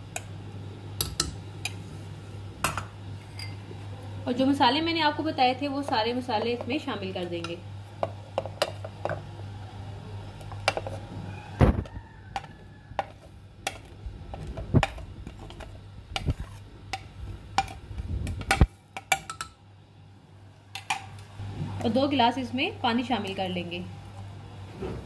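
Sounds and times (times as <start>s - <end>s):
low steady hum: 0.0s - 25.0s
spoon clinking on plate and glass: 2.7s - 3.6s.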